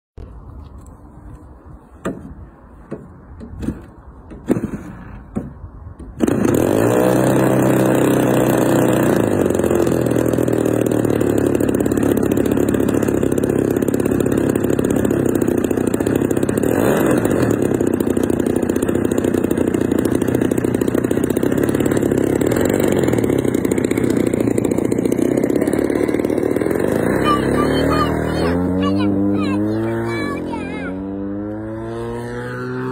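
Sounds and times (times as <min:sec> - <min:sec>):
model plane engine running: 0:07.2 - 0:30.8.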